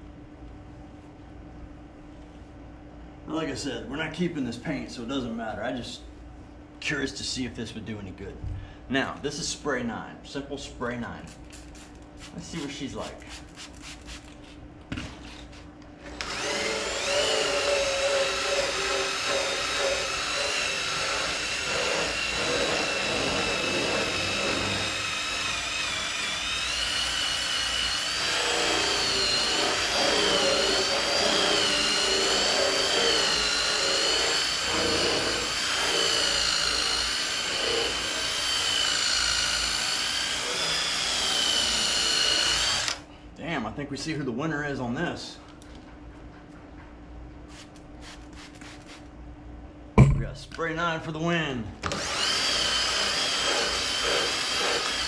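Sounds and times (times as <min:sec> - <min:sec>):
drill motor whining: 0:16.0 - 0:43.0, 0:51.8 - 0:55.0.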